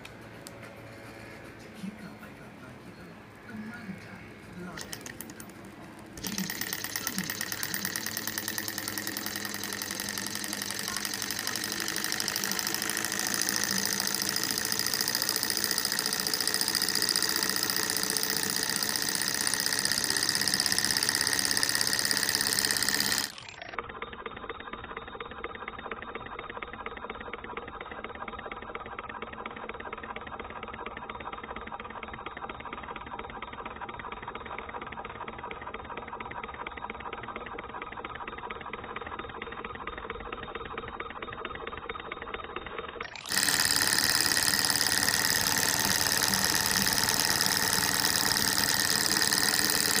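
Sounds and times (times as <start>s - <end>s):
model engine mechanical clatter: 4.6s - 50.0s.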